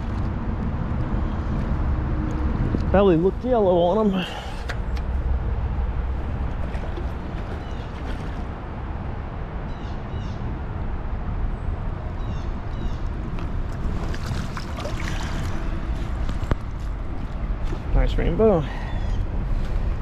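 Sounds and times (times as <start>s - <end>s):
creek water flowing: 4.1s - 9.1s, 13.0s - 17.9s.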